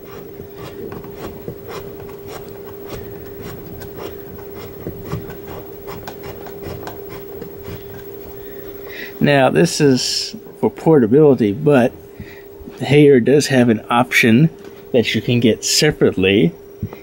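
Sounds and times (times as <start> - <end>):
hose threads scraping and ticking: 0.0 - 8.4
steady hum: 0.0 - 17.0.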